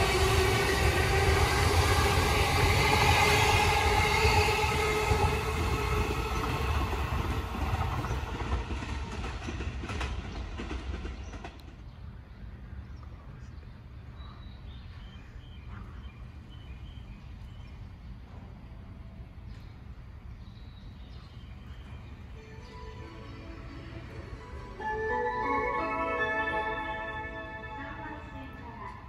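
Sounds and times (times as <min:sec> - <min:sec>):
steady tones from train: 0:00.0 - 0:29.0
train wheels on rail: 0:00.0 - 0:29.0
station background: 0:21.3 - 0:29.0.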